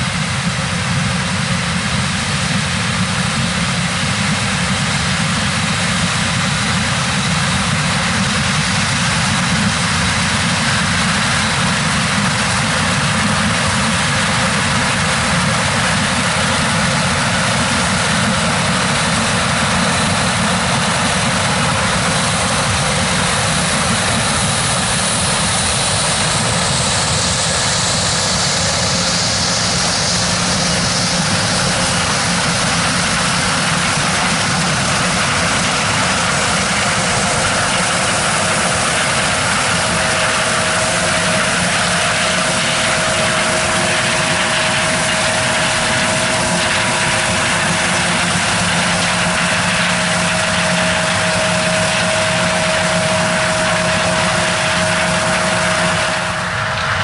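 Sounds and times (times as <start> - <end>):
harvesting machinery engines running: 0.0 - 57.0.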